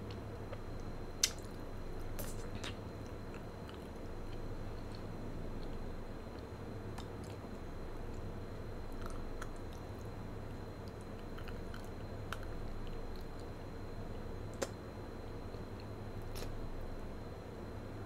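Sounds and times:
low background hum: 0.0 - 18.0
wet mouth chewing sounds: 0.5 - 6.4, 8.9 - 10.1, 10.8 - 13.5, 15.8 - 16.5
lip and tongue clicks: 1.2 - 1.6, 10.8 - 13.5.

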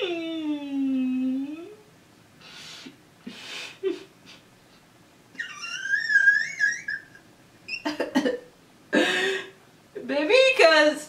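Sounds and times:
woman breathing: 2.4 - 4.4, 8.9 - 9.6
woman laughing: 3.3 - 4.4, 5.4 - 9.5.

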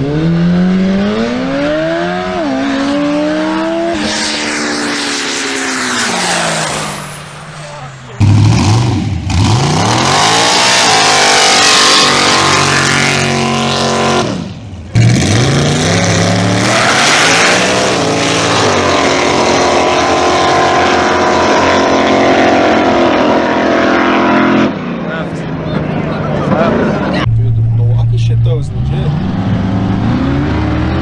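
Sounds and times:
tires spinning: 0.0 - 24.6
drag race engines revving: 0.0 - 31.0.

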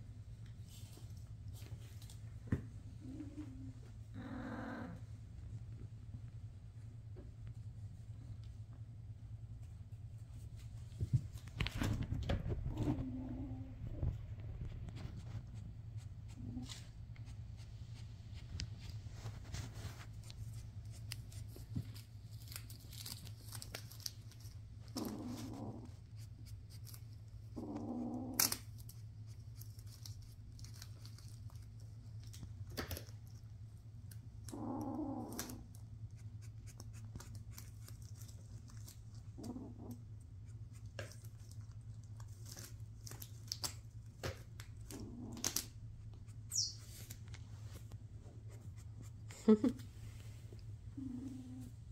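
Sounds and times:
steady low hum: 0.0 - 51.9
foil bow crinkling: 19.1 - 25.0.

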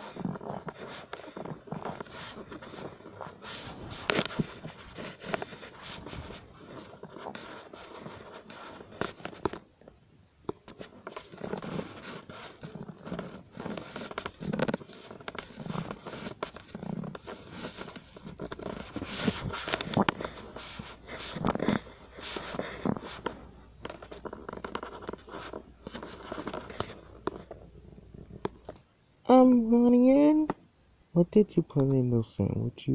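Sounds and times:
stomach gurgling and growling: 0.0 - 28.9.

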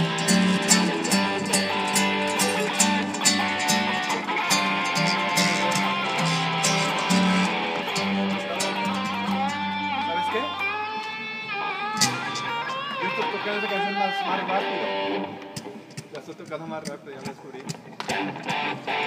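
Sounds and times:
electric guitar through amplifier: 0.0 - 17.0, 17.6 - 19.0
steady beat of sharp ticks: 15.4 - 18.6.

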